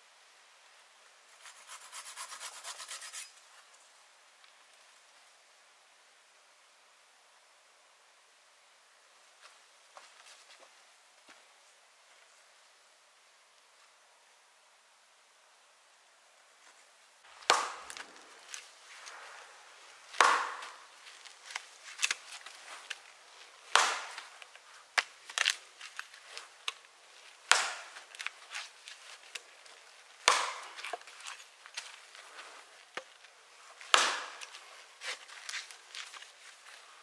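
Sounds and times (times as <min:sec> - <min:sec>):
faint outdoor hiss: 0:00.0 - 0:37.0
hatchet chopping into log: 0:17.4 - 0:18.1, 0:20.1 - 0:20.8, 0:23.7 - 0:24.2, 0:27.5 - 0:28.0, 0:30.2 - 0:31.0, 0:33.9 - 0:34.5.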